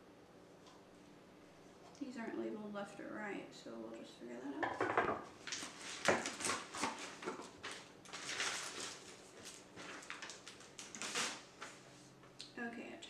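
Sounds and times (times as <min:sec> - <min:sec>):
paper rustling: 0:05.4 - 0:12.0.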